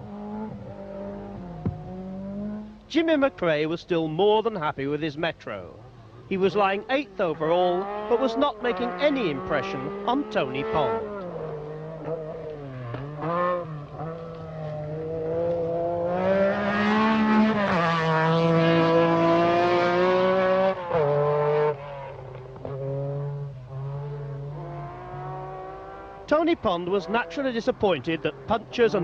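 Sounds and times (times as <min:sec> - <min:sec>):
rally car engine at full throttle: 0:00.0 - 0:03.5, 0:05.6 - 0:29.0.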